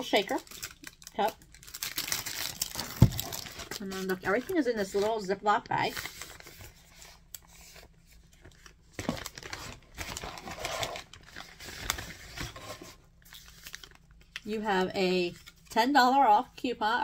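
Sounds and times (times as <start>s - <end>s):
plastic bag crinkling: 0.0s - 5.2s, 5.8s - 14.4s.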